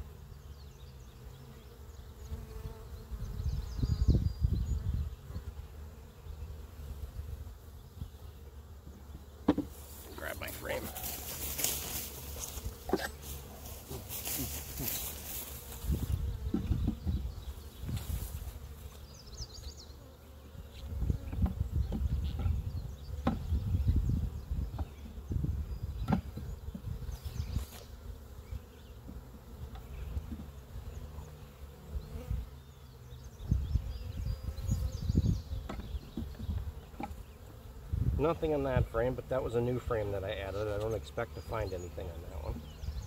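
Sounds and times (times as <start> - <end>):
honey bees buzzing: 0.0 - 43.0
wind rumble on microphone: 2.7 - 5.5, 15.8 - 18.4, 20.7 - 27.6, 33.4 - 36.8, 37.8 - 39.0.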